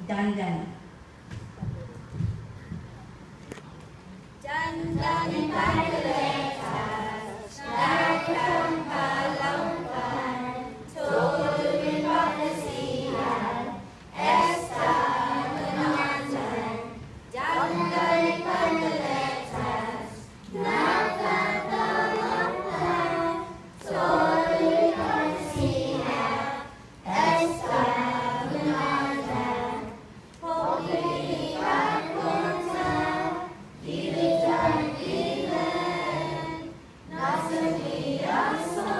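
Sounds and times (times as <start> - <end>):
children's choir singing: 4.4 - 38.9.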